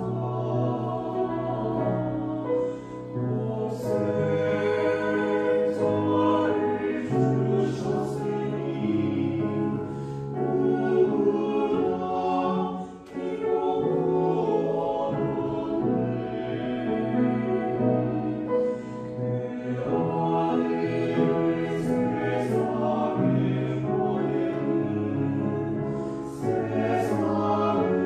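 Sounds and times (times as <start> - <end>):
choir singing a hymn: 0.0 - 28.0.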